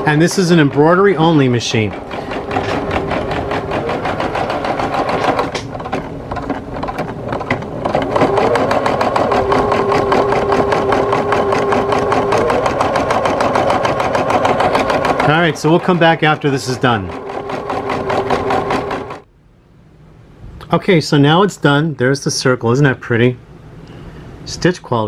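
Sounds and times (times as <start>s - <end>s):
embroidery machine needle stitching: 0.0s - 19.2s
motor whine: 0.0s - 19.2s.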